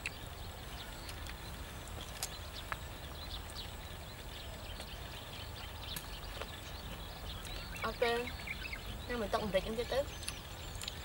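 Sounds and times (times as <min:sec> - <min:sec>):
birds chirping: 0:00.0 - 0:11.0
crunching of crispy skin: 0:10.2 - 0:11.0.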